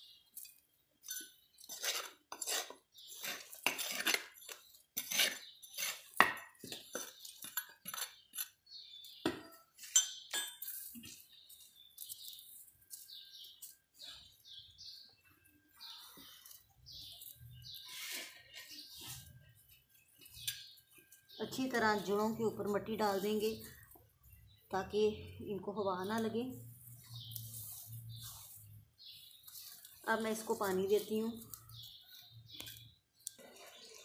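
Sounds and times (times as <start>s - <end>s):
soil scraping and crumbling: 0.1s - 9.0s, 26.0s - 34.0s
clinks against clay pot: 0.4s - 8.6s, 9.2s - 11.2s.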